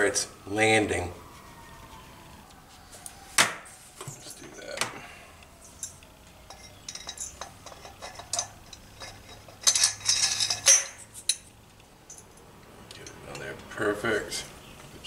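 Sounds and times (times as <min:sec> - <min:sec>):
metal engine parts clinking and scraping: 0:05.6 - 0:13.6.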